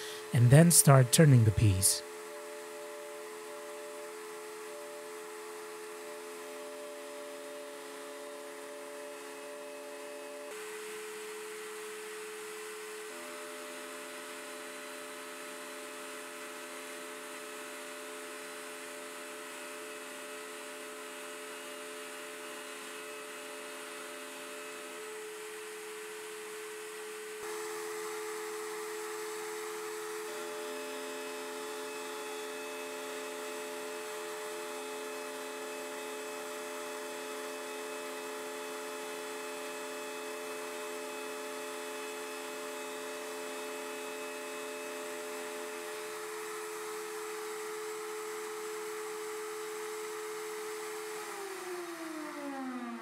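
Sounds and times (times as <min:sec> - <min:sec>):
router whining while trimming: 0:13.0 - 0:53.0.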